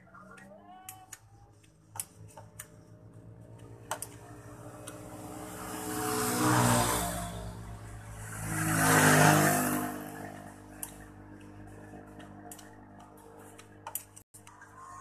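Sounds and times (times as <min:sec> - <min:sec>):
engine idling and revving: 0:00.0 - 0:14.8.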